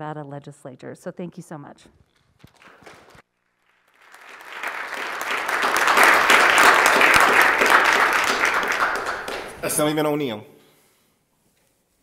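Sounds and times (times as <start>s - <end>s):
applause: 2.5s - 10.0s.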